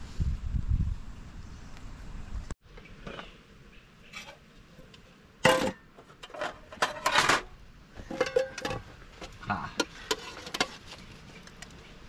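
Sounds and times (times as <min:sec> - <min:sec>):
dishes and utensils clattering: 0:05.4 - 0:08.9.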